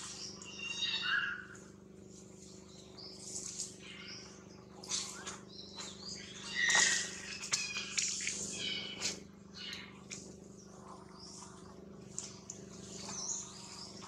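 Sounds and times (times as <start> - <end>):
steady low hum: 0.0 - 14.0
animal squeaks and chirps: 0.4 - 1.6, 6.3 - 9.9.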